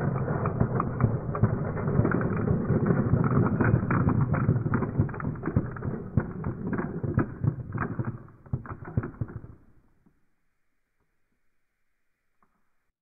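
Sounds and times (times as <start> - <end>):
steel balls clacking together: 0.0 - 9.7
steel balls rolling on plastic track: 0.0 - 9.8.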